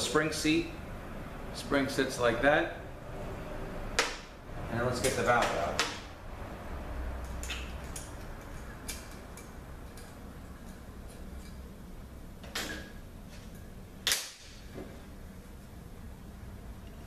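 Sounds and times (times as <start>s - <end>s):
metal parts clicking and tapping: 7.2s - 11.6s.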